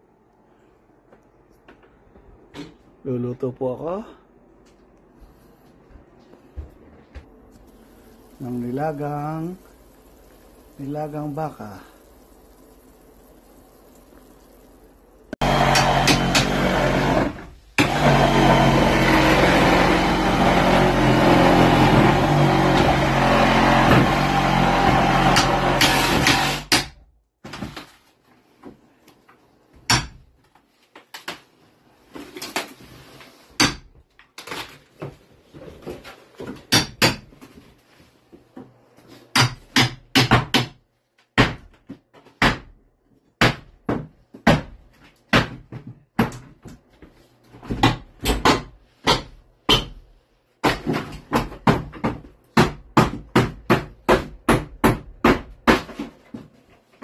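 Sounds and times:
hammers striking wood: 0:15.4 - 0:17.2, 0:17.8 - 0:27.0, 0:29.8 - 0:30.2, 0:33.6 - 0:33.9, 0:36.7 - 0:37.3, 0:39.3 - 0:40.8, 0:41.4 - 0:41.8, 0:42.4 - 0:42.8, 0:43.4 - 0:46.5, 0:47.7 - 0:50.0, 0:50.6 - 0:56.1.

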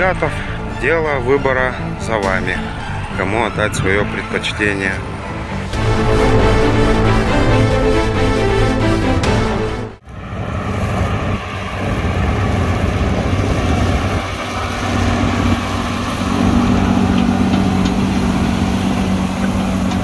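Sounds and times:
theme music: 0:00.0 - 0:10.0
tractor diesel engine under load: 0:00.0 - 0:20.0.

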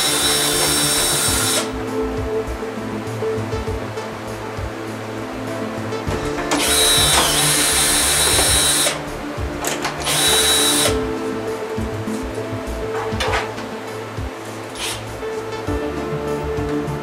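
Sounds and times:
cordless drill motor whining: 0:10.0 - 0:11.0.

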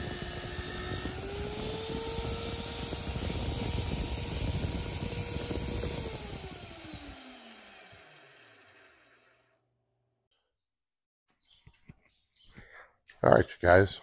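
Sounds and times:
drill press motor whine: 0:00.0 - 0:09.6.

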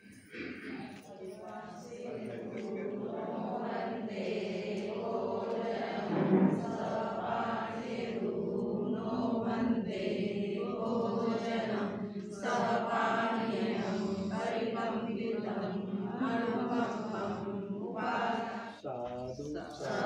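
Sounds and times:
congregation chanting in unison: 0:00.0 - 0:20.0.

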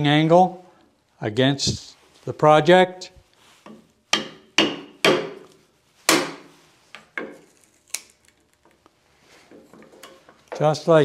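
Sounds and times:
wood joint splitting: 0:03.7 - 0:08.8
chisel struck with sharp blows: 0:04.1 - 0:05.4, 0:06.1 - 0:06.5.

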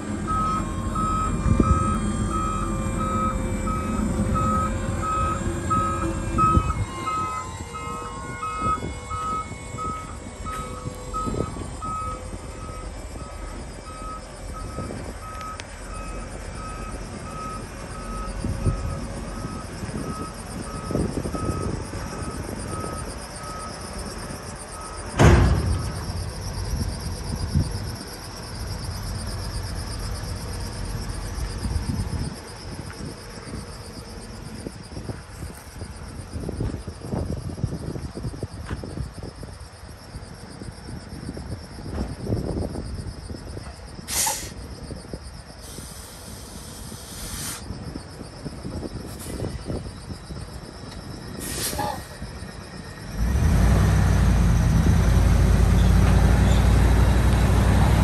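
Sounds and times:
truck engine idling: 0:00.0 - 0:36.4
electronic warning beeper: 0:00.1 - 0:28.1
loud thump: 0:25.1 - 0:26.4.

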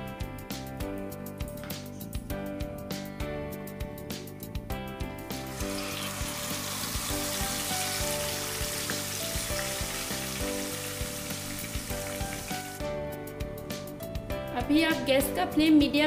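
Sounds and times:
background music with beat: 0:00.0 - 0:14.8
meat sizzling in hot oil: 0:05.3 - 0:12.9.

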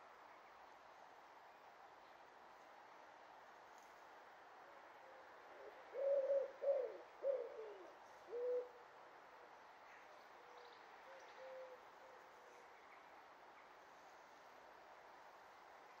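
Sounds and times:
dove cooing: 0:05.6 - 0:08.8.

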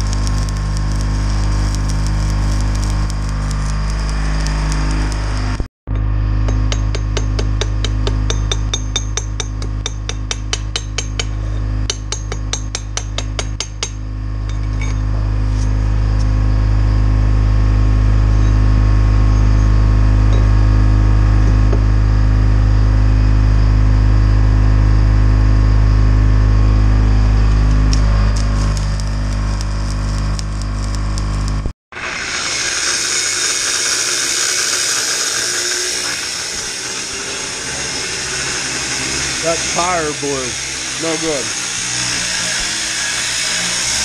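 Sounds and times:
diesel engine droning: 0:00.0 - 0:08.8, 0:15.1 - 0:31.7, 0:36.6 - 0:41.8
hammer tapping metal: 0:05.9 - 0:15.0.

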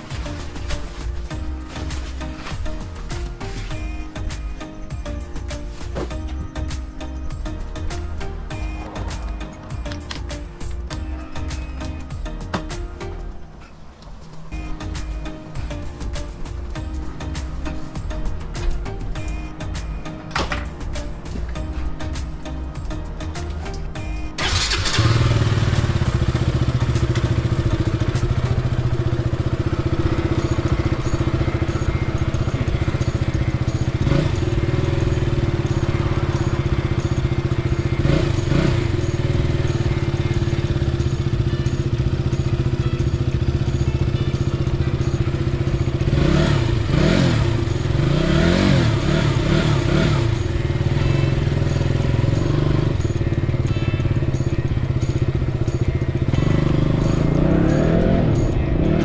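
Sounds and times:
motorcycle engine running: 0:24.4 - 0:59.0.

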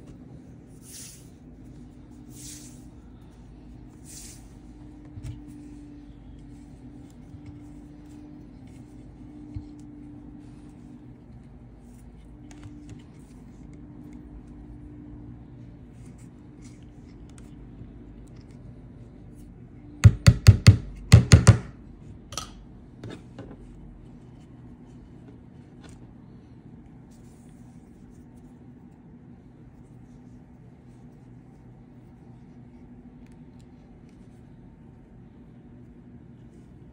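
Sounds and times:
faint steady hum: 0:00.0 - 0:36.9
sharp knocks on hard surface: 0:20.0 - 0:21.7.

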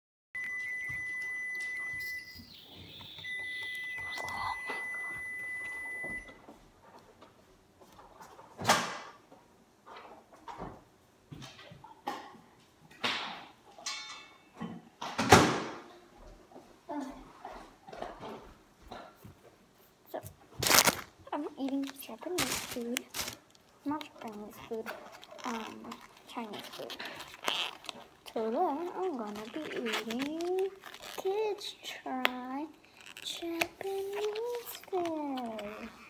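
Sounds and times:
high electronic beep: 0:00.4 - 0:06.3.

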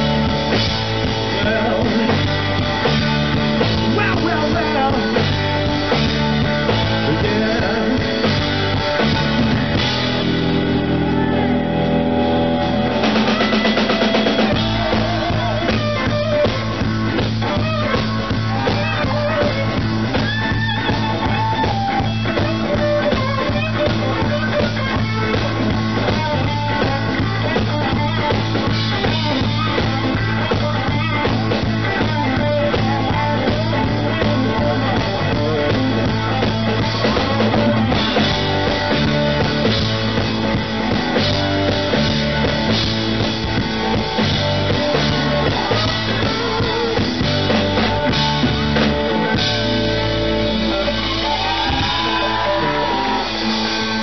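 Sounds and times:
bass line: 0:00.0 - 0:54.0
drum kit: 0:00.0 - 0:54.0
electric guitar: 0:00.0 - 0:54.0.

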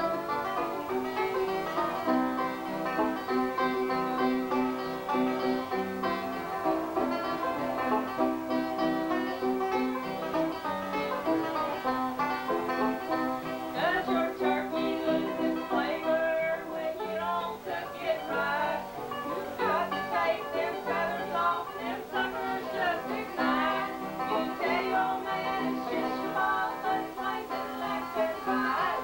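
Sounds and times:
acoustic guitar: 0:00.0 - 0:29.0
banjo: 0:00.0 - 0:29.0
women singing: 0:13.7 - 0:29.0.

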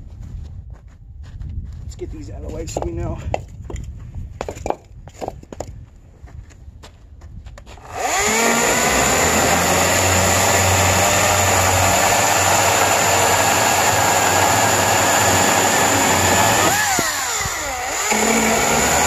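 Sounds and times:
electric chainsaw cutting wood: 0:07.8 - 0:19.0.

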